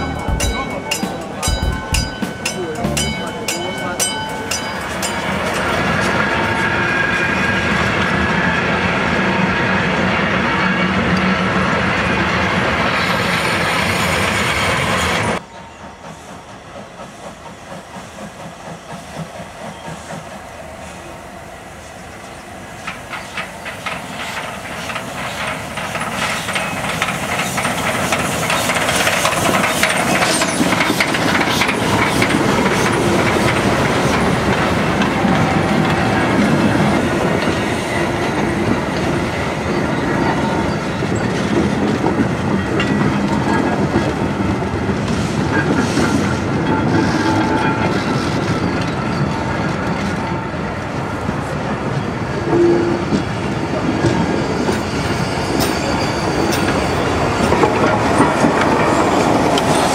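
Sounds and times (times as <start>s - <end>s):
coaches rattling over rail joints: 0.0s - 6.9s, 22.8s - 59.9s
steam locomotive exhaust chuffs: 15.4s - 21.1s, 21.8s - 47.2s.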